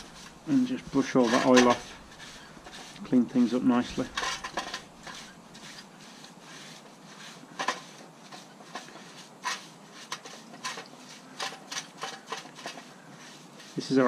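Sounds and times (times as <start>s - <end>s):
paintbrush bristles swishing: 4.9s - 14.0s.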